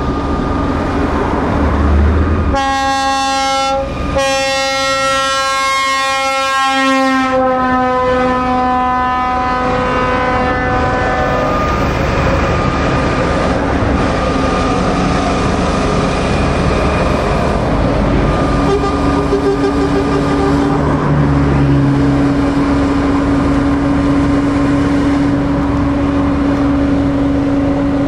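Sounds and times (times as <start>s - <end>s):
traffic driving past: 0.0s - 4.3s, 9.6s - 28.0s
truck air horn: 2.5s - 11.8s, 18.6s - 20.9s.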